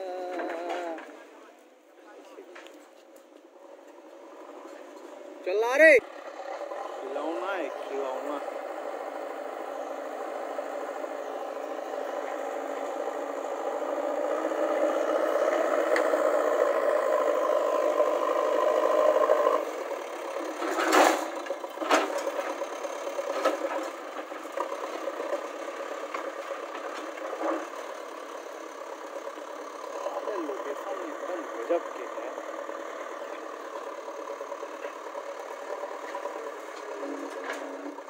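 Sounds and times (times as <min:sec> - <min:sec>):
backhoe diesel engine working: 0:00.0 - 0:38.0
metal clanks and rattles: 0:20.6 - 0:22.7.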